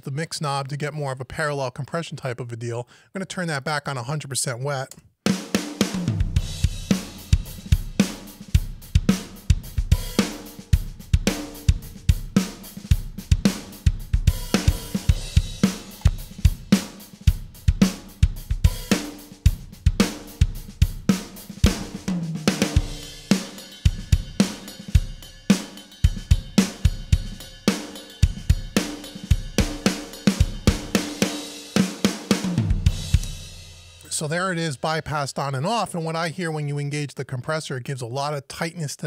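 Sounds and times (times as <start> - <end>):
drum kit beat: 5.3 - 36.0.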